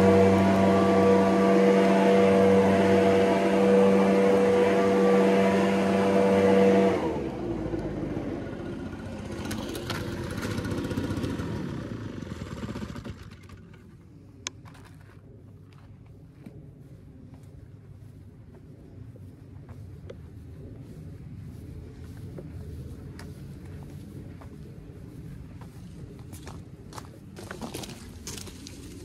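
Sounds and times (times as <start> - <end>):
leaf blower running: 0.0 - 13.9.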